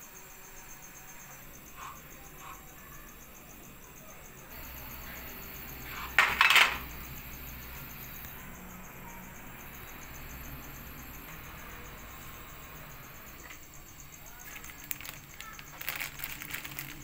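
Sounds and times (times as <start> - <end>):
dishes clinking: 6.0 - 6.9.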